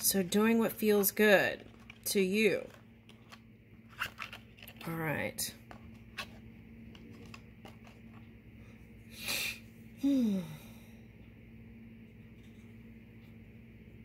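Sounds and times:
faint steady hum: 0.0s - 14.0s
person sighing: 9.2s - 11.0s.

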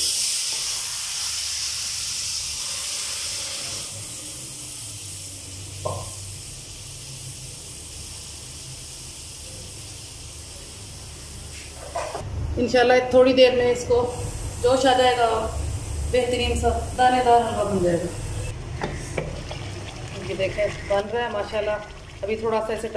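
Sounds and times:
sugar syrup sizzling: 13.7s - 22.9s.

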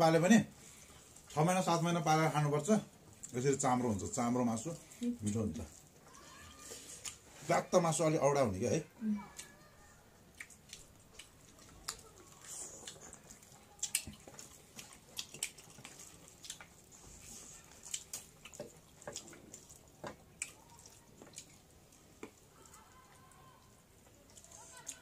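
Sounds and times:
wet chewing smacks: 3.0s - 7.3s, 10.3s - 25.0s.

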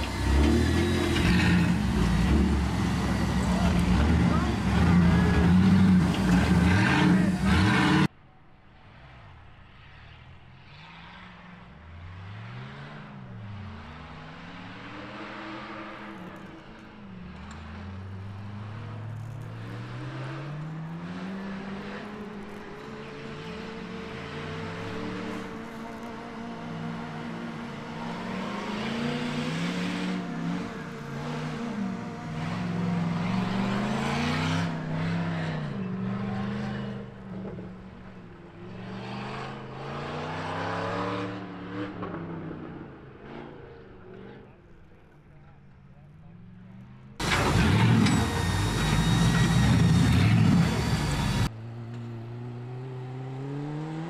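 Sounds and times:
buggy engine revving: 0.0s - 8.1s, 12.0s - 45.8s, 47.2s - 54.0s
loud nearby engine running: 0.0s - 8.1s, 47.2s - 51.5s.

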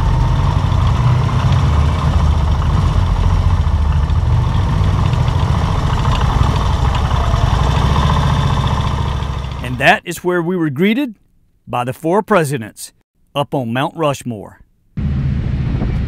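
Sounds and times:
motorcycle engine running: 0.0s - 10.0s, 15.0s - 16.0s.

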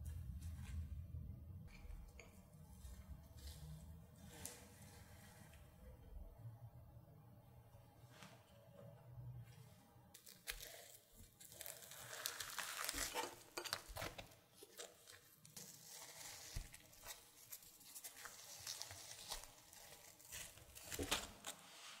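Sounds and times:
flaky toast tearing and crackling: 10.1s - 21.5s.

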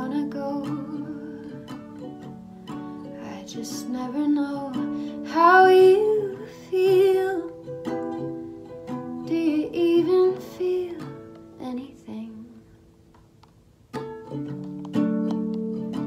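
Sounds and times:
music with plucked strings: 0.0s - 16.0s.

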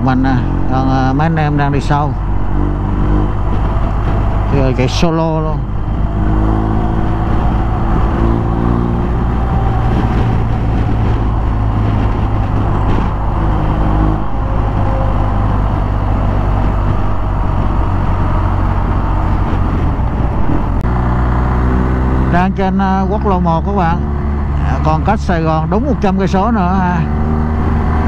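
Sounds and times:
wind and road noise: 0.0s - 28.0s.

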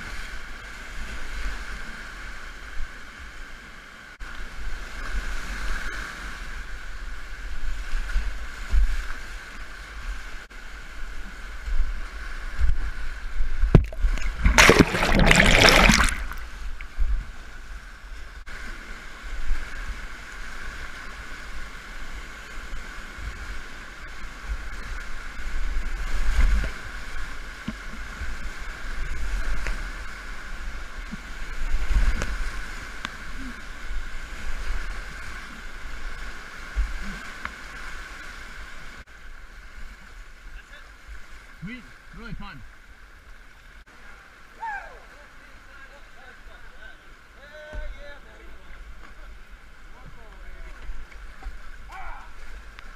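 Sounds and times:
water striking boat: 13.6s - 16.5s, 47.6s - 52.9s
loud splash: 13.7s - 16.8s
rapids rushing: 13.8s - 16.8s.

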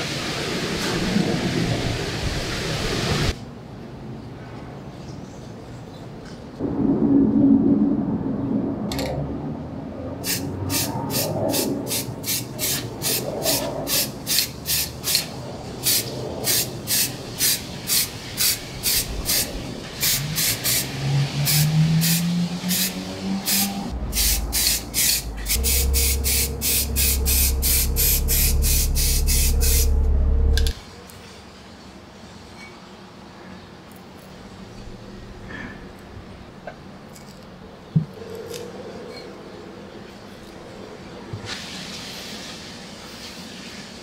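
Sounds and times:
low hum: 6.6s - 10.2s, 23.7s - 30.8s
spray can hissing: 10.2s - 13.2s, 13.9s - 30.7s.

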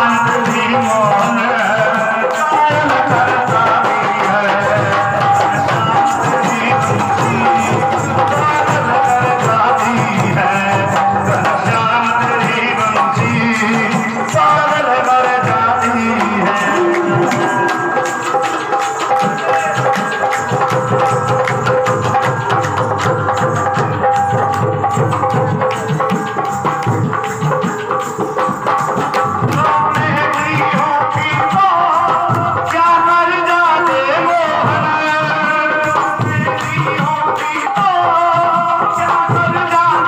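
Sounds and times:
held melody line: 0.0s - 31.6s
hand drum fast rhythm: 0.0s - 40.0s.

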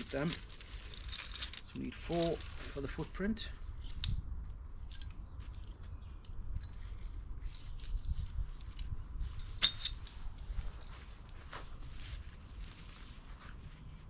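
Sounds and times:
metallic clinks: 0.0s - 2.4s, 4.8s - 5.2s, 6.5s - 11.0s
tent pegs rubbing and scraping: 0.0s - 3.1s, 6.6s - 14.0s
low wind rumble: 0.0s - 14.0s.

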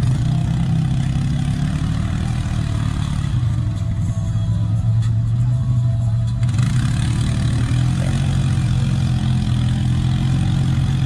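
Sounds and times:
atv engine droning: 0.0s - 11.0s.

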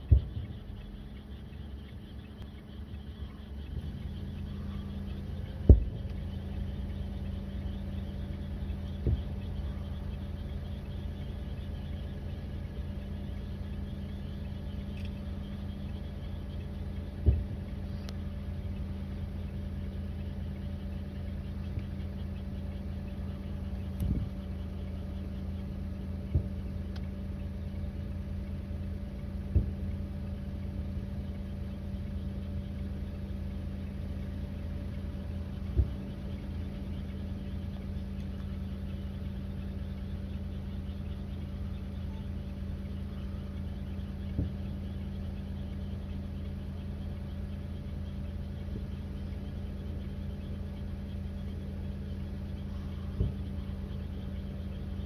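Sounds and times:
distant fireworks booming: 0.0s - 0.7s, 5.2s - 6.5s, 17.1s - 17.7s
faint high chirping: 0.0s - 55.0s
low hum: 0.0s - 55.0s.

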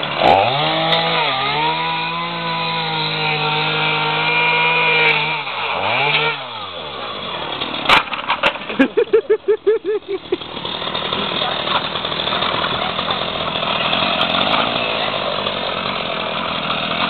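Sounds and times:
chainsaw cutting: 0.0s - 17.0s
broken pieces clattering: 7.8s - 9.0s.

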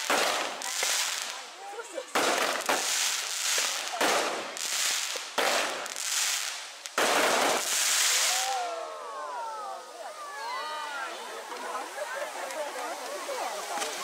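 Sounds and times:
fireworks hissing bursts: 0.0s - 8.8s.

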